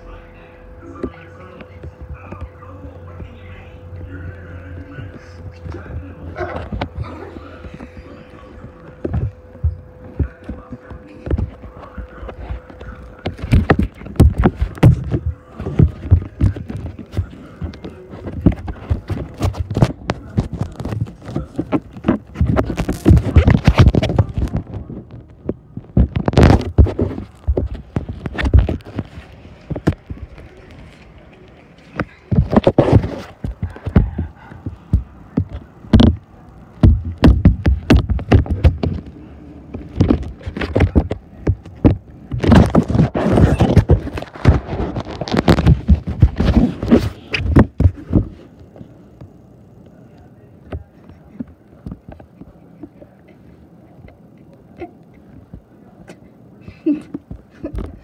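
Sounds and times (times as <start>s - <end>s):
rustling and scraping: 4.1s - 49.3s
irregular knocks and thuds: 36.8s - 39.1s.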